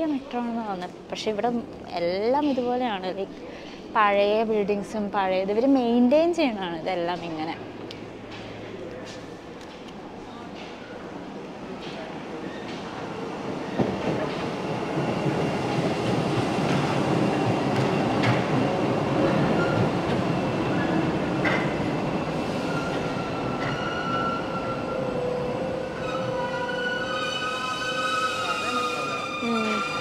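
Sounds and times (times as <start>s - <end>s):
high train squealing: 19.2s - 30.0s.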